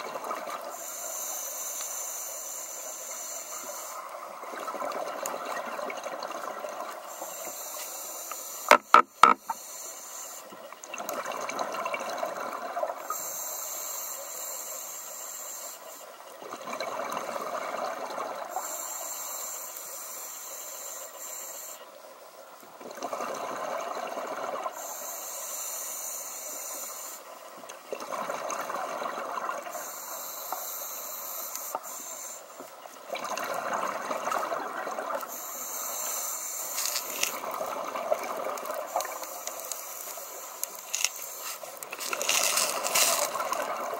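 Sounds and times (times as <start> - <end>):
regulator inhale hiss: 0.7 - 4.2, 7.0 - 10.6, 13.0 - 16.2, 18.5 - 21.9, 24.7 - 27.4, 29.7 - 32.7, 35.2 - 37.5, 38.9 - 43.4.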